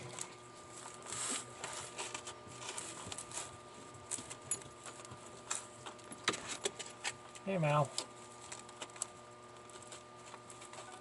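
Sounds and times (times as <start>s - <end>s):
faint rustling of hands: 0.0s - 6.7s.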